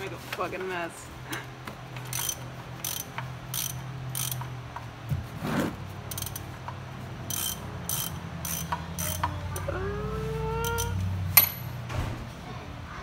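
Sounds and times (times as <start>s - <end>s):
socket ratchet clicking: 2.1s - 4.9s, 6.1s - 9.4s.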